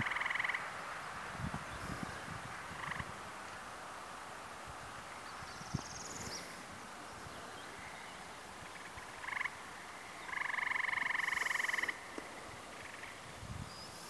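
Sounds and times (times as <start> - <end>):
frog trilling: 0.0 - 0.6, 2.8 - 3.1, 8.6 - 9.6, 10.2 - 12.1, 12.7 - 13.2.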